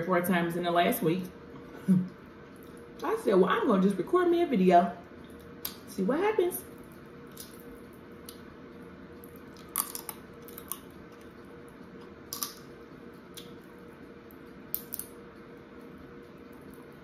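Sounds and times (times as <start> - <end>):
faint steady hum: 0.0 - 17.0
chewing: 7.3 - 13.7
crab shells cracking: 9.2 - 11.4, 12.2 - 13.6, 14.6 - 15.3.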